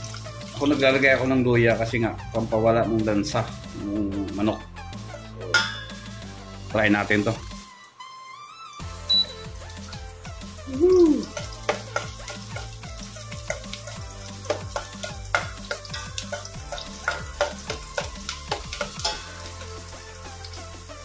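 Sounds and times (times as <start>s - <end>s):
food sizzling in hot oil: 0.0s - 7.8s, 8.8s - 21.0s
utensil scraping a pot: 13.4s - 19.6s.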